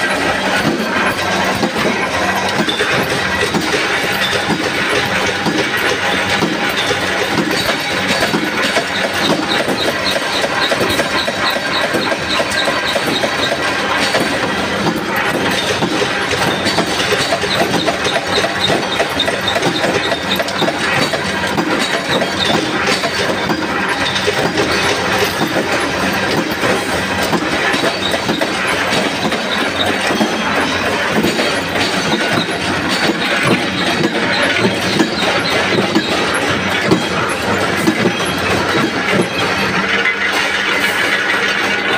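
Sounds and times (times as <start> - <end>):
punch press metallic clatter: 0.0 - 41.9
washers clinking down metal chute: 0.0 - 41.9.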